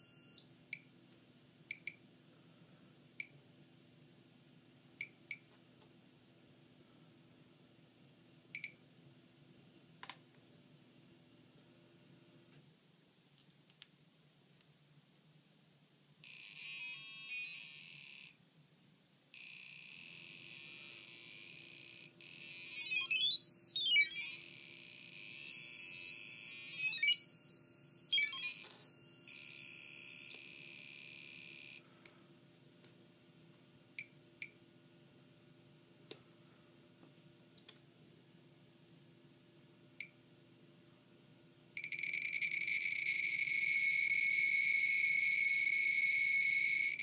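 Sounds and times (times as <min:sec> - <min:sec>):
steady high alarm tone: 0:22.4 - 0:30.4, 0:41.9 - 0:47.0.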